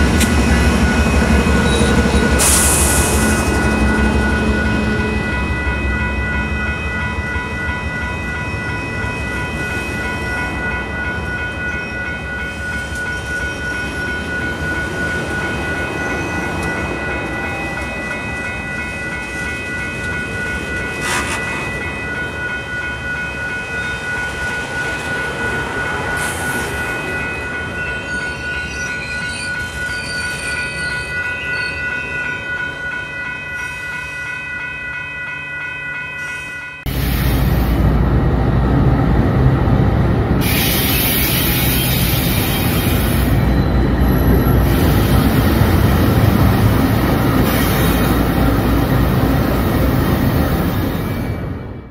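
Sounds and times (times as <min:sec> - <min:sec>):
train wheels clattering on rails: 0:00.0 - 0:04.9
crossing bell ringing: 0:00.0 - 0:51.9.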